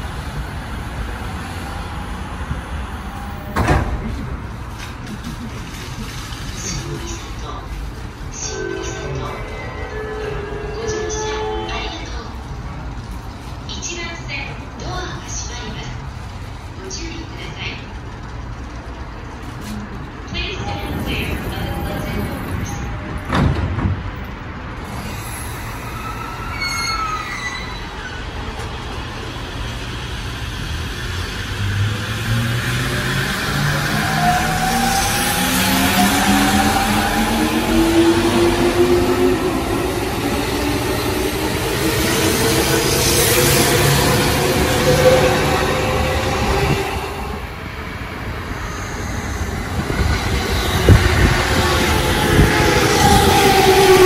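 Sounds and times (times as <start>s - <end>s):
electric train rumbling: 0.0s - 54.0s.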